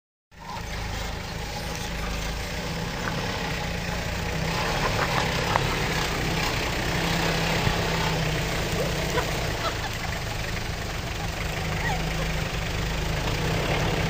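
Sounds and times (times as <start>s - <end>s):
off-road vehicle engine rumbling: 0.3s - 14.0s.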